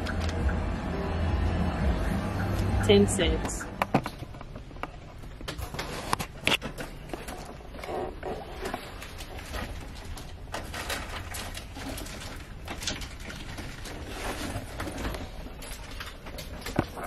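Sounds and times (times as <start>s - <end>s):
low steady rumble: 0.0s - 5.5s.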